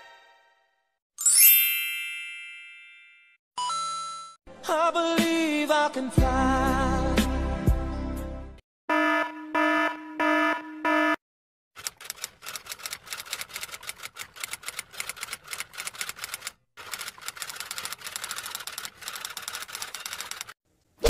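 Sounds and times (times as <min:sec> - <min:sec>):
alarm beeping: 0:08.9 - 0:11.2
typewriter keys clattering: 0:11.8 - 0:20.6.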